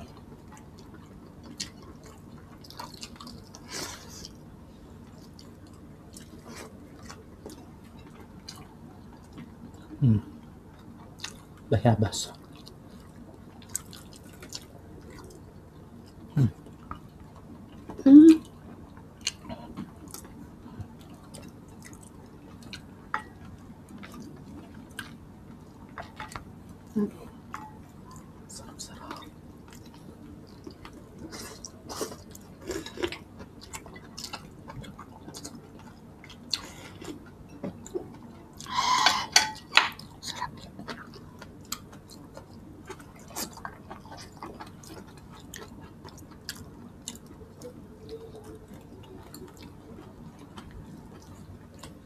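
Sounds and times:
wet chewing and mouth smacks: 0.8 - 4.4, 39.6 - 52.0.

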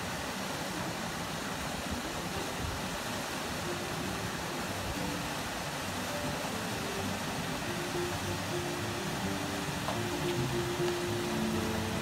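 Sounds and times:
small waterfall rushing: 0.0 - 12.0.

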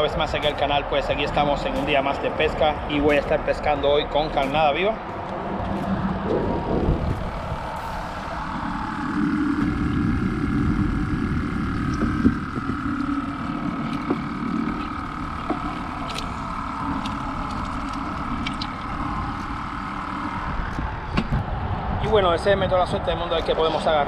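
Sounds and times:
highway traffic noise: 0.0 - 9.8.

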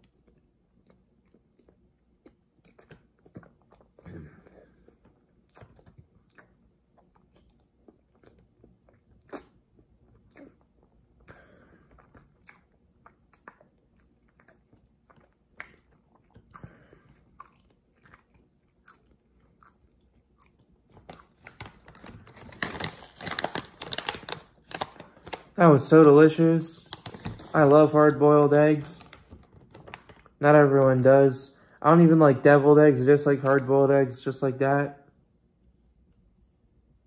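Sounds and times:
person chewing with wet clicks: 0.0 - 22.0.

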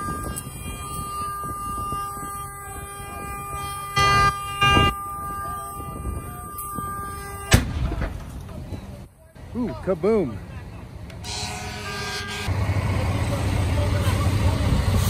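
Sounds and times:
vehicle horn steady note: 0.0 - 7.7, 11.2 - 12.5
tire bursting bang: 7.3 - 8.8.

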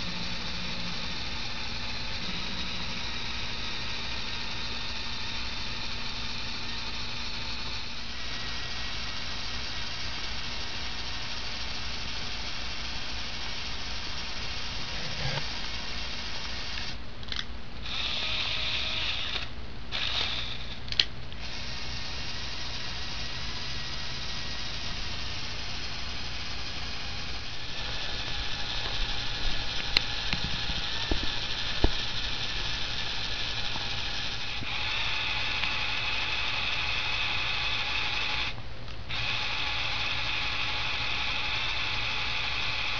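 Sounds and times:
motor whirring through plastic gears: 0.0 - 42.9
sharp clicks: 27.8 - 34.7.

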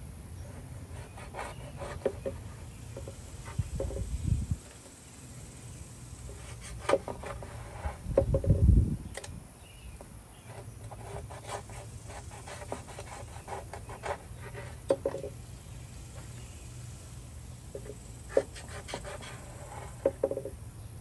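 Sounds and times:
cleaver cutting on plastic board: 0.5 - 4.1, 6.3 - 8.6, 10.4 - 15.4, 17.7 - 20.5.

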